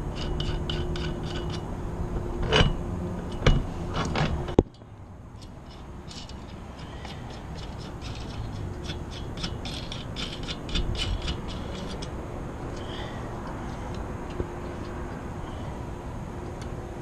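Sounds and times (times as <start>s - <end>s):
steady low rumble: 0.0s - 17.0s
ratchet wrench clicking: 5.4s - 12.1s.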